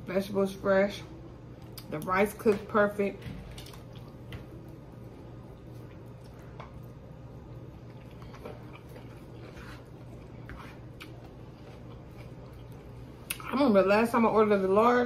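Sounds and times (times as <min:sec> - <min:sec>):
steady low hum: 0:00.0 - 0:15.0
person chewing food: 0:03.5 - 0:13.4.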